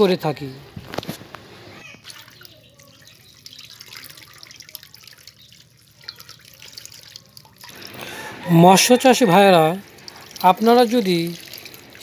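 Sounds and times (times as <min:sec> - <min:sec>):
small water splashes and drips: 0:01.9 - 0:08.4, 0:09.4 - 0:12.0.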